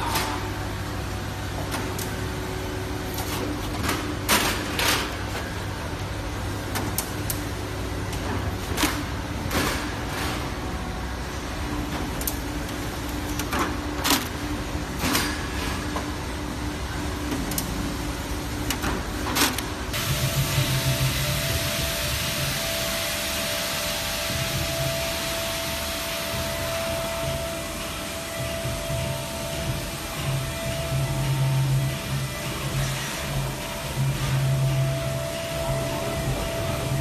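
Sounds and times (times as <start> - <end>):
factory machinery hum: 0.0 - 37.0.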